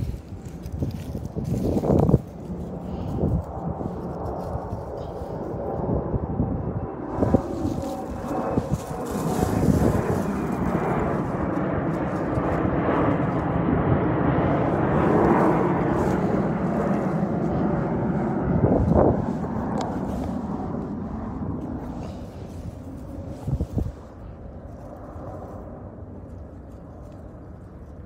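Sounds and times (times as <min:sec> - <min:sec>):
low engine drone: 0:00.0 - 0:28.0.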